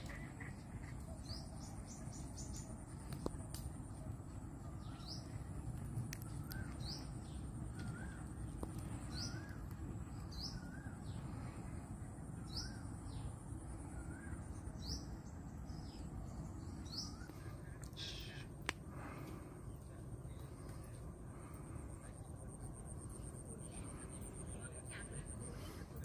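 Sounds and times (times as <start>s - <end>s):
steady low rumble: 0.0s - 26.0s
faint high whine: 1.5s - 26.0s
birds calling: 4.6s - 21.6s.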